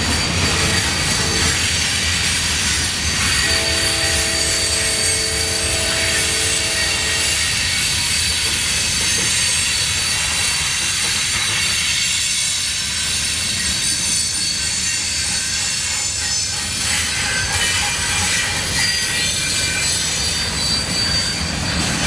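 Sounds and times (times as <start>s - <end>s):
high wheel squeal: 0.0s - 22.0s
train horn chord: 3.4s - 7.6s.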